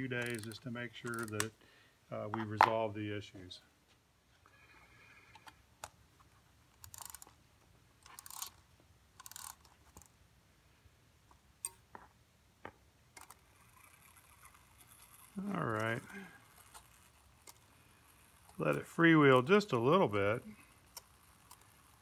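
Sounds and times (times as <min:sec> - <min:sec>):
light clicks of clock parts: 0:00.2 - 0:01.5.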